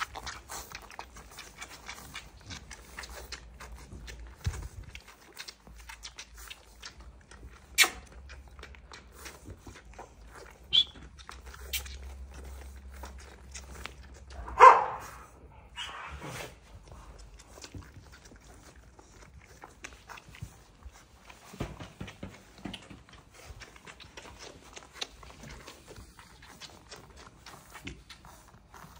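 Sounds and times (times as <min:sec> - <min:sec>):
puppy squeak: 0:07.8 - 0:08.1, 0:10.6 - 0:11.8
dog barking: 0:14.4 - 0:16.2.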